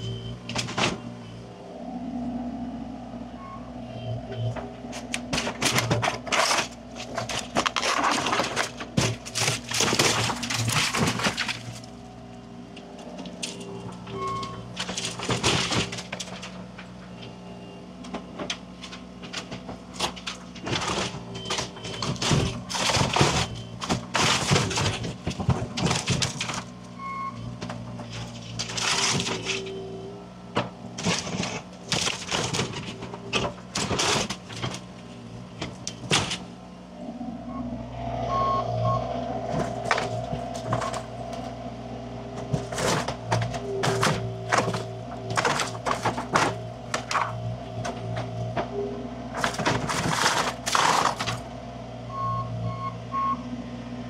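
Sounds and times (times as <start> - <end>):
machine engine running: 0.0 - 52.2
material cracking and crashing: 5.0 - 12.0, 13.2 - 16.8, 18.4 - 26.8, 27.6 - 29.7, 30.9 - 35.0, 39.4 - 41.6, 42.4 - 48.7, 49.3 - 51.5.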